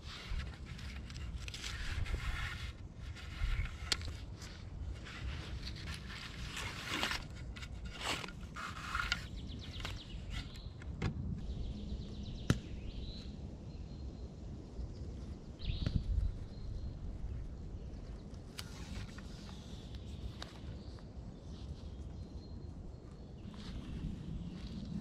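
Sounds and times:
cord rasping and rustling: 0:00.0 - 0:10.6.

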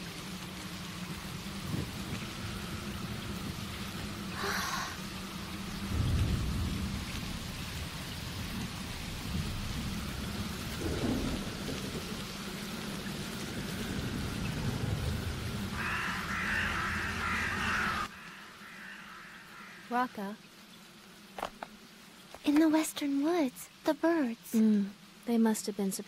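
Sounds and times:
heavy rain pouring: 0:00.0 - 0:26.0
thunder rolling: 0:05.7 - 0:18.1.

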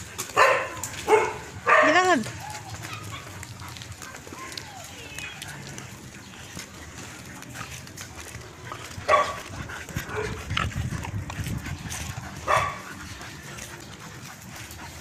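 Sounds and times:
dog barking gruffly: 0:00.3 - 0:03.7, 0:09.0 - 0:10.5, 0:12.3 - 0:13.0.

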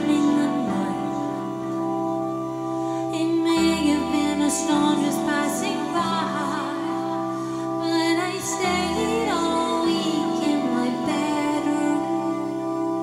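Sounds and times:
woman singing: 0:00.0 - 0:01.8, 0:03.0 - 0:13.0
synthesizer chords: 0:00.0 - 0:13.0.

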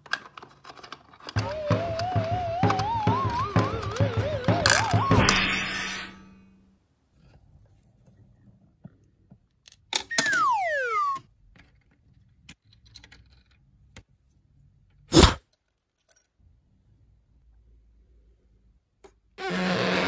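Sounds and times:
plastic toys clicking and tapping: 0:00.0 - 0:05.0
falling whistle sound effect: 0:01.4 - 0:06.3, 0:10.1 - 0:11.3.

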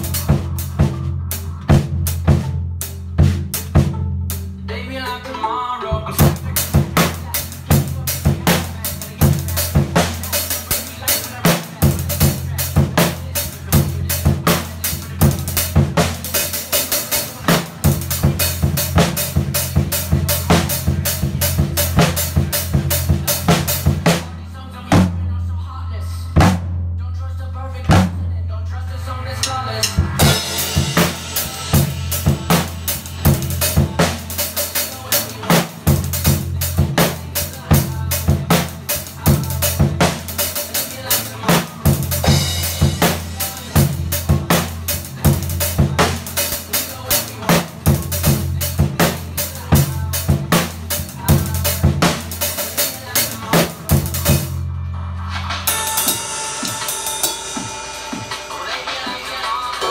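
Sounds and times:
drum kit playing: 0:00.0 - 0:25.4, 0:26.4 - 0:26.9, 0:27.8 - 0:28.2, 0:29.3 - 0:59.9
bass line: 0:00.0 - 0:57.0
cymbals ringing: 0:29.4 - 0:35.4, 0:55.0 - 0:59.9.

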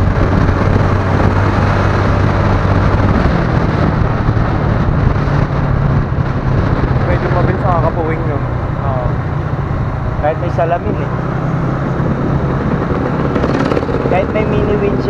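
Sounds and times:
wind rushing over microphone: 0:00.0 - 0:15.0
small motorcycle engine running: 0:10.2 - 0:15.0.

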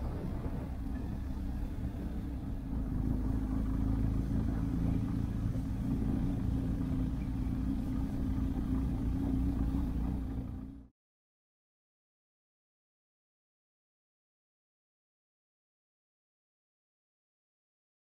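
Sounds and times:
motorcycle engine running: 0:00.0 - 0:10.9
wind and road noise: 0:00.0 - 0:10.9.

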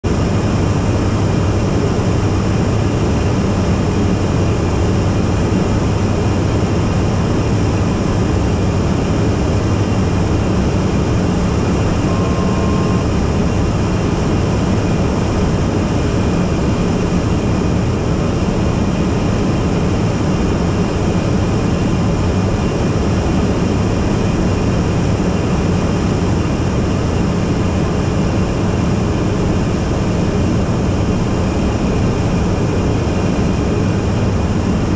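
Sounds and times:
aircraft engine drone: 0:00.0 - 0:34.9
cabin wind noise: 0:00.0 - 0:34.9
short faint tone: 0:11.6 - 0:13.6.

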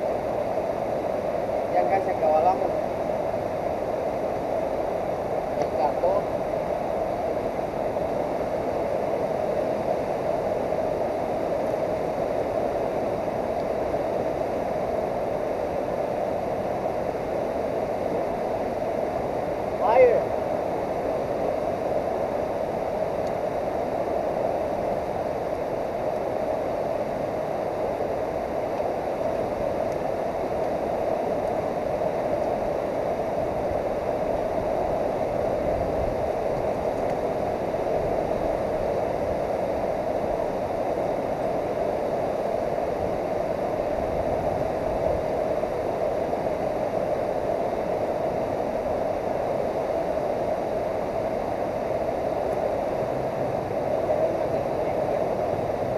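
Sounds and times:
river water rushing: 0:00.0 - 0:55.9.

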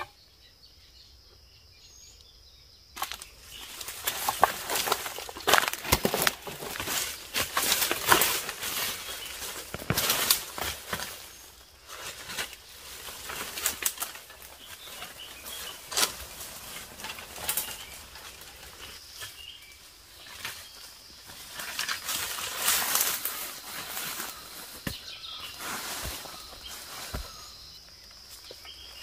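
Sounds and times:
high-pitched insect call: 0:00.0 - 0:29.0
footsteps: 0:03.0 - 0:11.3, 0:21.2 - 0:28.7
twigs snapping: 0:03.0 - 0:11.4, 0:12.0 - 0:19.4
leaves rustling and crackling: 0:03.0 - 0:29.0.

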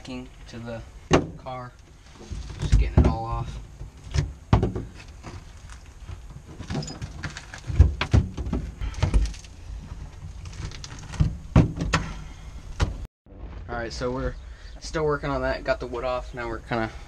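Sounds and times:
scraping and tearing backing: 0:04.8 - 0:12.1.

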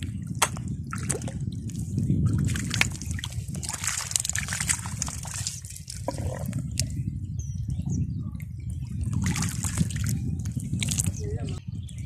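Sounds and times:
water drips: 0:00.0 - 0:07.0, 0:08.8 - 0:11.6
hand squelching in wet mud: 0:00.4 - 0:06.9.

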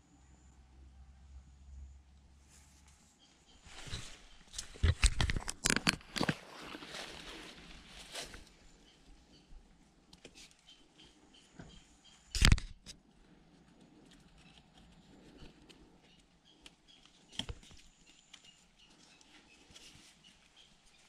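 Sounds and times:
hands rustling tying cord: 0:03.6 - 0:08.6, 0:12.4 - 0:21.0.

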